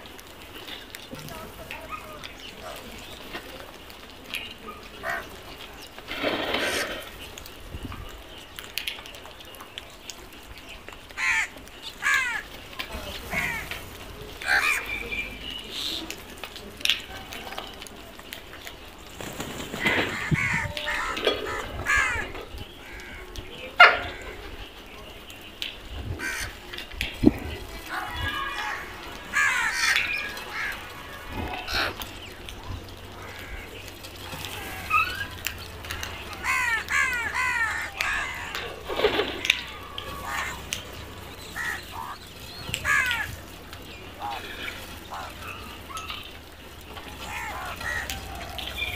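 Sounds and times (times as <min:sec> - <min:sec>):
crows cawing: 0:11.1 - 0:12.6, 0:13.2 - 0:15.0, 0:19.8 - 0:23.4, 0:26.2 - 0:26.6, 0:27.8 - 0:32.4, 0:33.0 - 0:46.3, 0:47.0 - 0:48.9.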